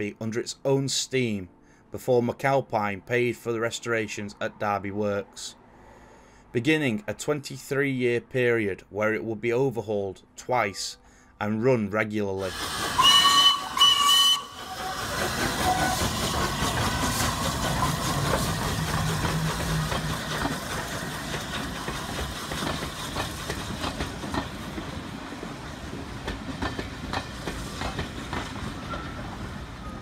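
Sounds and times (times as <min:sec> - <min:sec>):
steam locomotive hiss and exhaust: 0:12.4 - 0:30.0
steam locomotive whistle: 0:12.6 - 0:16.4.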